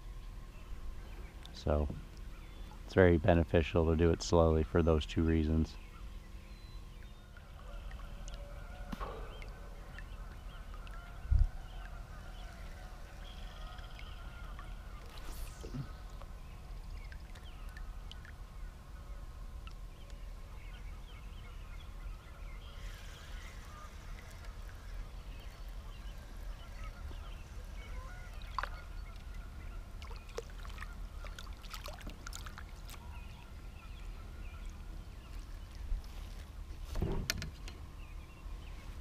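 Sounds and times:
low steady rumble: 0.0s - 39.0s
distant waterfowl honking: 7.2s - 15.2s, 22.1s - 31.6s.

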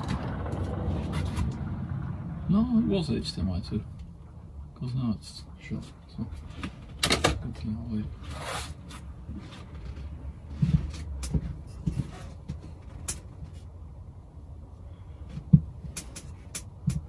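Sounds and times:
low steady rumble: 0.0s - 17.0s
handling knocks and rustles: 8.8s - 13.8s.

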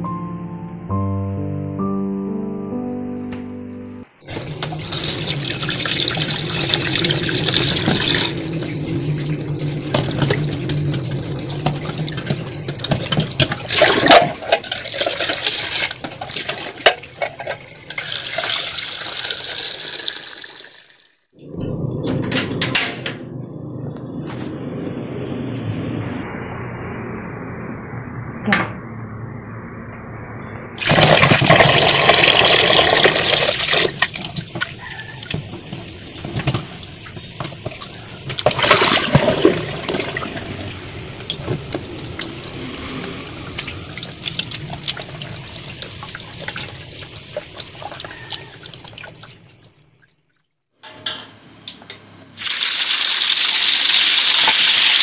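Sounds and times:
pot of water boiling: 4.2s - 21.1s, 30.8s - 49.9s, 51.8s - 55.0s
splashing and handling: 4.3s - 19.8s, 30.8s - 50.5s
eggs sizzling in oil: 4.3s - 21.0s, 30.8s - 49.4s, 52.4s - 55.0s.

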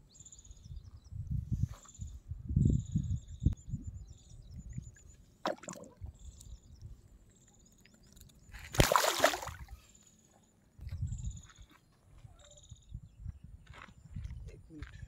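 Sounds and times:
fish splashing in water: 8.7s - 9.6s.

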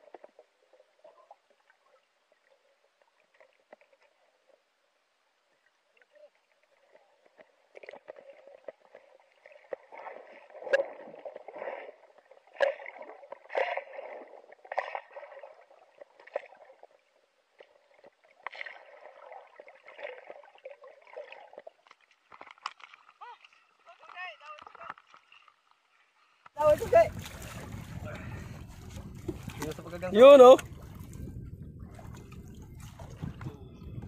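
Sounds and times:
water sloshing underwater: 0.0s - 34.0s
sharp knocks through water: 9.7s - 15.4s, 26.6s - 34.0s.

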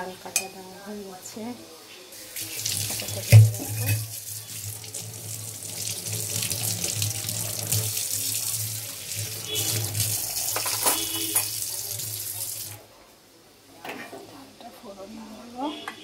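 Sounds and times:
tap water running into metal sink: 2.2s - 12.8s.

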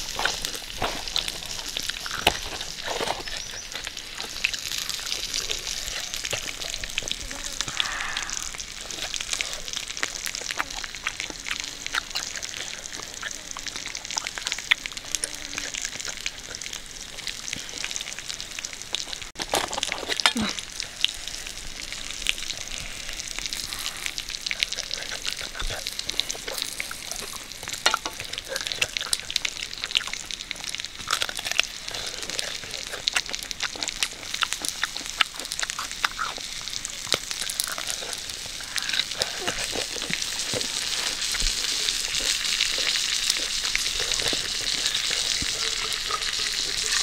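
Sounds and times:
person chewing and crunching: 0.0s - 47.0s
mouth clicks and smacks: 23.3s - 47.0s.

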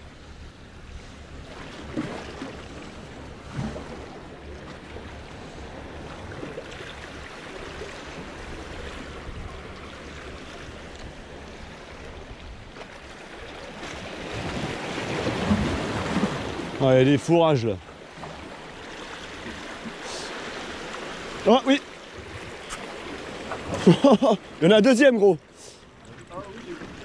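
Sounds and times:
sea waves washing against rocks: 13.0s - 27.0s.

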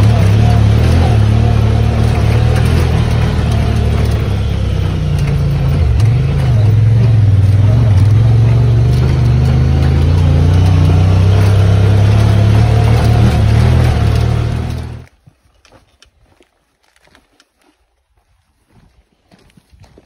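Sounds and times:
vehicle engine running loudly: 0.0s - 15.1s
faint footsteps on rocky ground: 0.0s - 20.0s.

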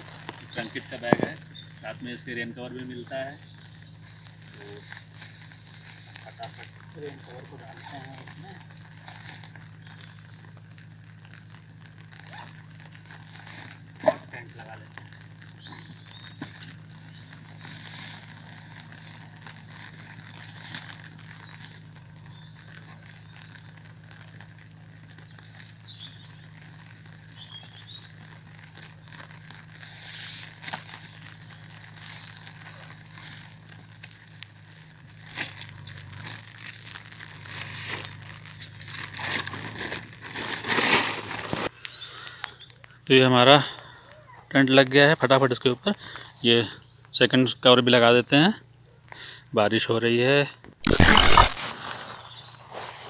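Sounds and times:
steady low hum: 0.0s - 43.0s
small birds chirping: 0.0s - 53.0s
nylon fabric rustling: 50.8s - 52.2s.

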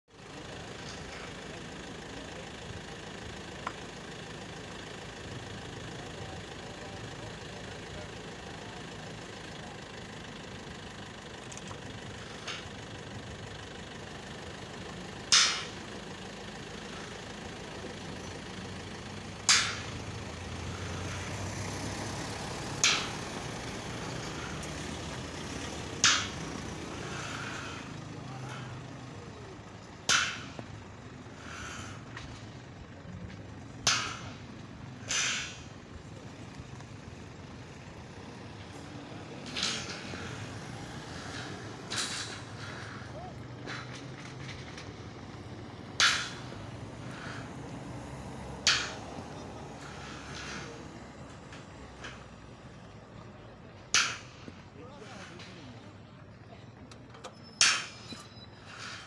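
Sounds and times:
vehicle engine idling: 0.1s - 59.0s.

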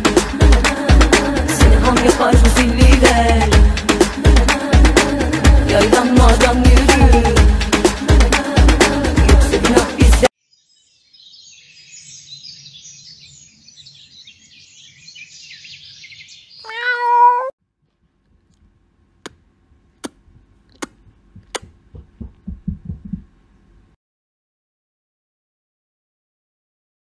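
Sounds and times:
cat meowing: 16.6s - 17.5s
low soft thumps: 20.2s - 23.5s.

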